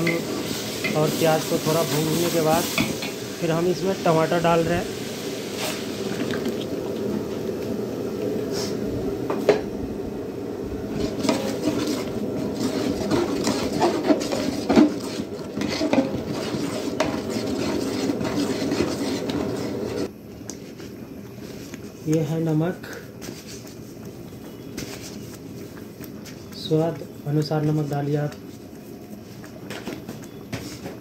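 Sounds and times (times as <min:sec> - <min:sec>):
spatula scraping metal pot: 0:10.9 - 0:20.1.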